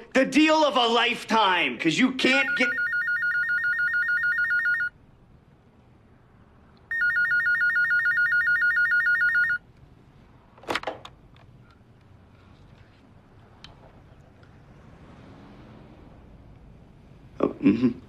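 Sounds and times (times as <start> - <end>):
telephone ringing with electronic trill: 2.4 - 5.0, 6.9 - 9.6.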